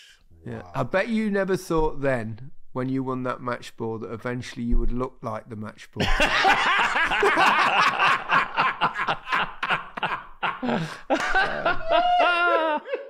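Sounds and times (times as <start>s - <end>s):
high wavering laugh: 6.0s - 13.0s
men laughing: 6.0s - 13.0s.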